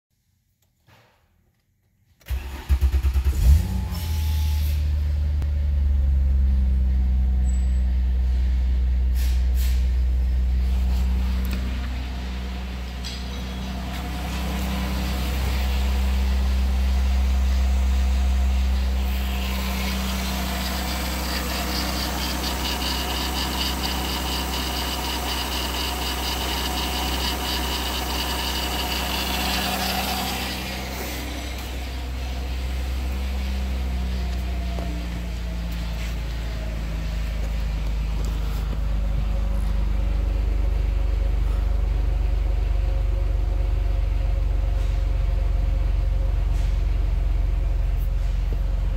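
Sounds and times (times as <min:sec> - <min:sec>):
car engine idling: 0:02.3 - 0:48.9
high whine with rapid ticking: 0:19.6 - 0:30.6.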